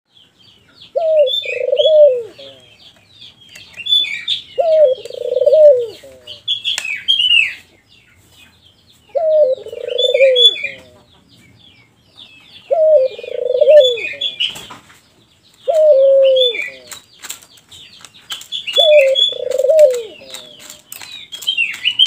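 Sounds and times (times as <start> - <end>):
songbirds chirping: 0.1 - 22.0
dove cooing: 0.9 - 2.7, 4.6 - 6.4, 9.1 - 11.1, 12.7 - 14.5, 15.7 - 17.0, 18.7 - 20.8.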